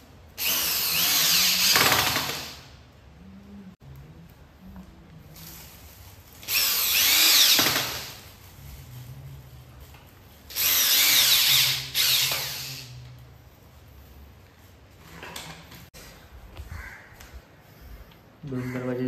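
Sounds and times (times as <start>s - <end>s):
drill-driver driving screws: 0.4s - 2.7s, 6.4s - 8.2s, 10.5s - 12.9s.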